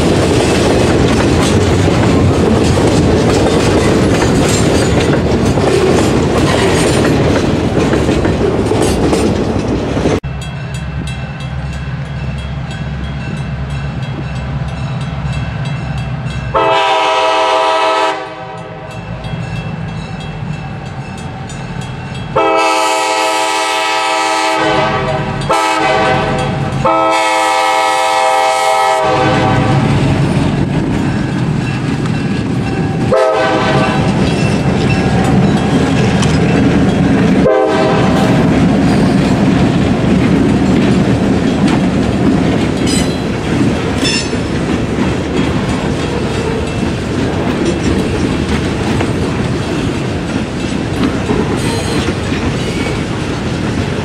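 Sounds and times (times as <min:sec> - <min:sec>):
wheels clattering over joints: 0:00.0 - 0:10.0
freight train rumbling: 0:00.0 - 0:54.0
locomotive horn blasts: 0:16.5 - 0:19.0, 0:22.4 - 0:30.0, 0:33.1 - 0:34.2, 0:37.4 - 0:38.4.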